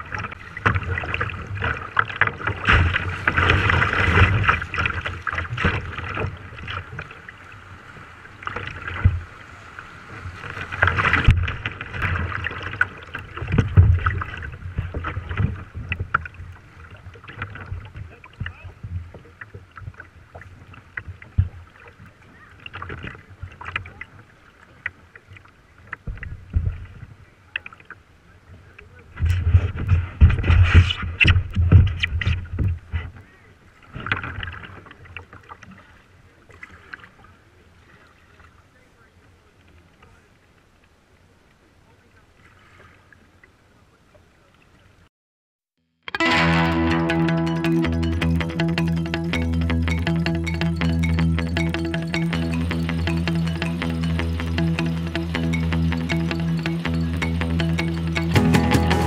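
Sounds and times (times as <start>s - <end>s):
river water splashing against hull: 0.0s - 45.1s.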